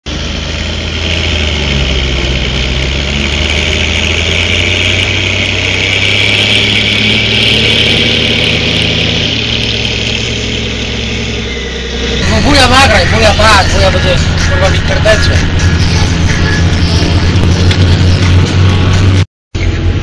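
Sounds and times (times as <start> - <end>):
tractor diesel engine passing: 0.1 - 20.0.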